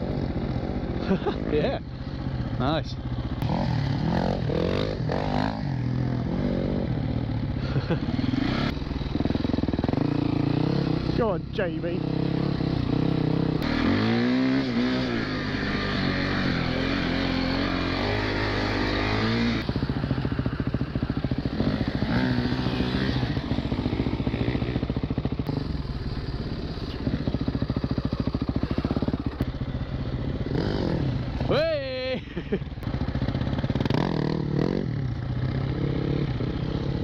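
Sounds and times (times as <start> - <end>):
dirt bike engine revving: 0.0 - 37.0.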